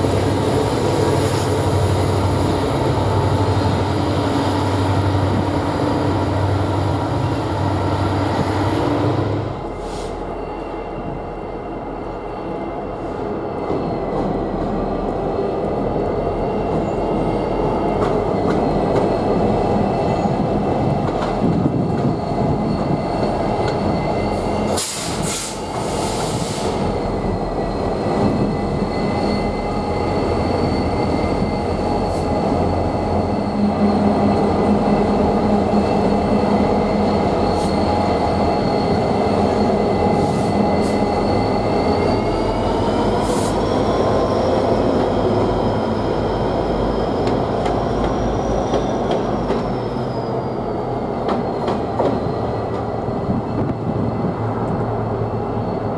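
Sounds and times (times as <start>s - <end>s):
diesel locomotive engine rumble: 14.1s - 55.9s.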